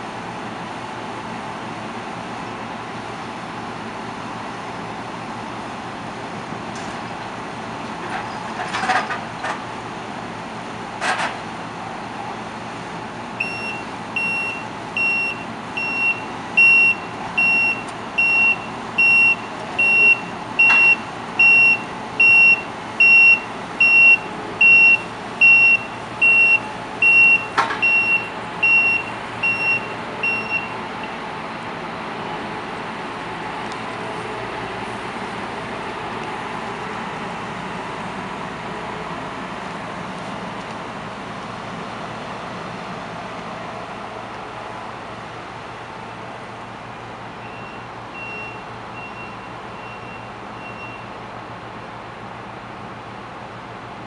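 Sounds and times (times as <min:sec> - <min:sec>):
combine harvester running: 0:00.0 - 0:54.0
reversing alarm beeping: 0:13.4 - 0:30.8, 0:47.4 - 0:51.1.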